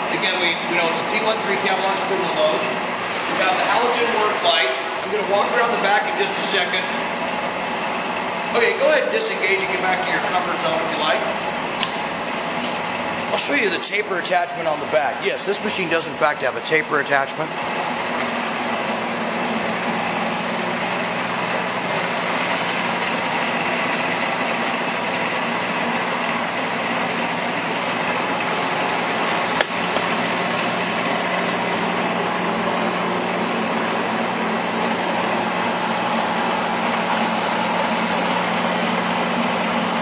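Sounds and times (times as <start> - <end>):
lathe humming: 0.0 - 40.0
sharp click: 11.8 - 12.0, 29.6 - 30.2.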